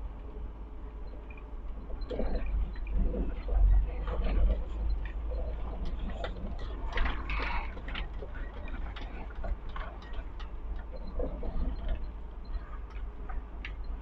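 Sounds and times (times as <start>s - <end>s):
truck engine and road rumble: 0.0s - 14.0s
cab clicks and rattles: 3.3s - 14.0s.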